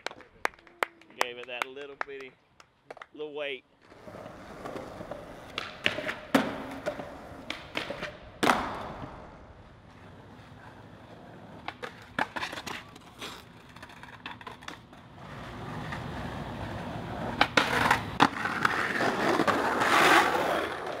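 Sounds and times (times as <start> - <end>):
skateboard wheels rolling on concrete: 3.7 - 21.0
skateboard taps and clacks: 5.5 - 8.9.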